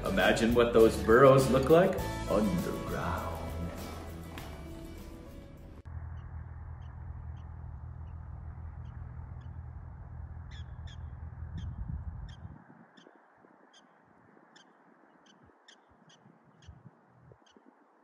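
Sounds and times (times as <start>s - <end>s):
low rumble: 5.6s - 12.7s
prairie dogs barking: 6.1s - 18.0s.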